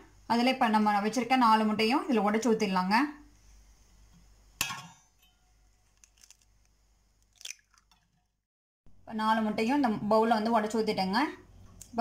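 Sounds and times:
eggshell crackling: 5.8 - 8.3.

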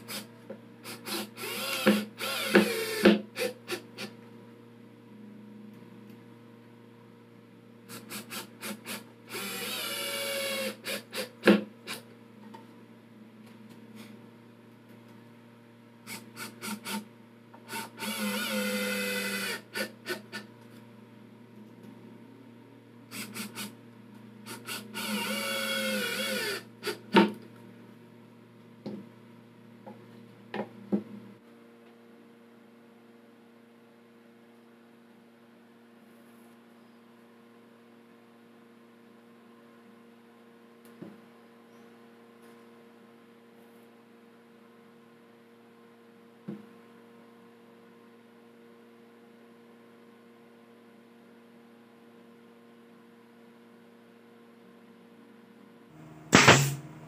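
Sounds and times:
faint steady hum: 0.0 - 57.0
electric screwdriver whine: 0.9 - 3.8, 7.9 - 11.3, 17.7 - 20.2, 24.5 - 27.0.

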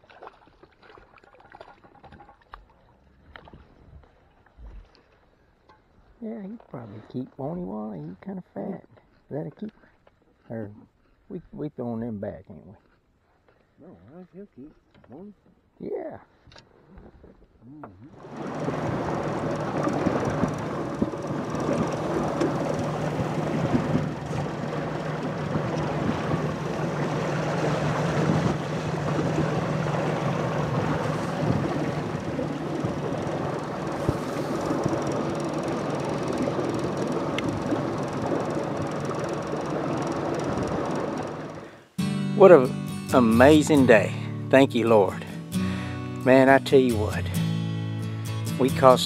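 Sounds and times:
outboard motor running: 17.8 - 44.2
wind and water rushing: 18.0 - 41.8.

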